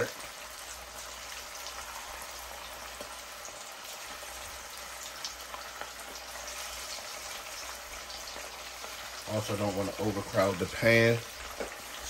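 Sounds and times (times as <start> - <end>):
fish deep-frying in hot oil: 0.0 - 12.0
oil crackling and popping: 0.0 - 12.0.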